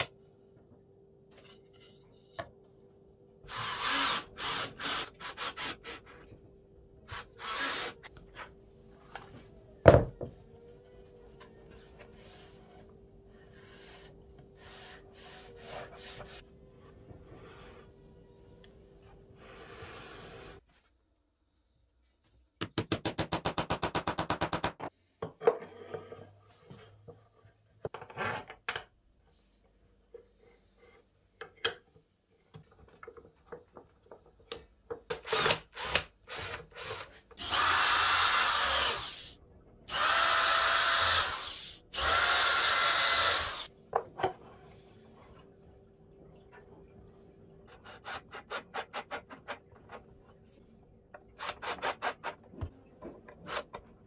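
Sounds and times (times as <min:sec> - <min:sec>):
cordless drill whine: 0:36.4 - 0:39.3, 0:39.9 - 0:43.7.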